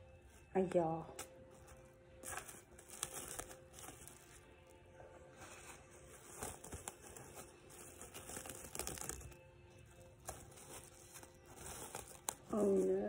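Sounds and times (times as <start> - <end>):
cling film crinkling: 1.7 - 4.8, 6.0 - 13.0.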